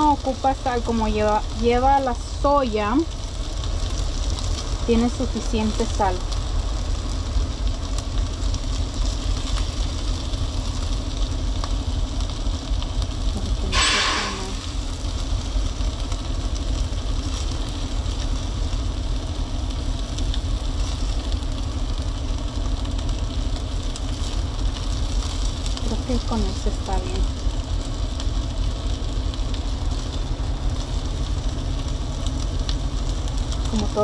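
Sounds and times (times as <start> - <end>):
short loud hiss: 13.6 - 14.7.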